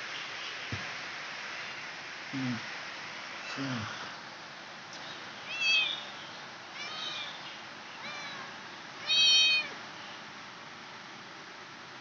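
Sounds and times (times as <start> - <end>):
kitten mewing: 9.0 - 9.7.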